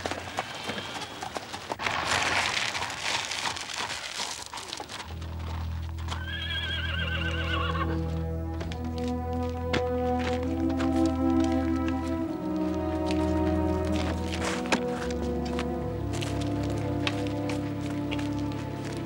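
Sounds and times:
hooves and wheels on gravel: 0.0 - 19.0
sustained low music chord: 5.1 - 6.2, 7.8 - 19.0
horse whinnying: 6.1 - 8.1.

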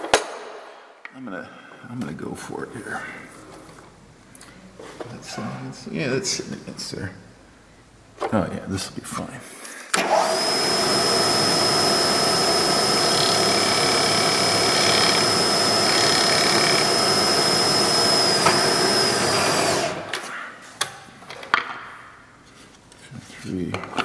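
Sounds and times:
milling machine motor whining: 10.0 - 20.2
router bit cutting wood: 10.0 - 20.3.

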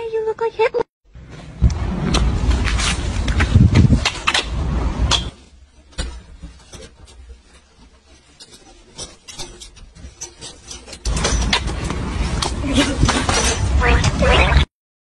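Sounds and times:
wire clicking and rubbing: 2.1 - 13.6.

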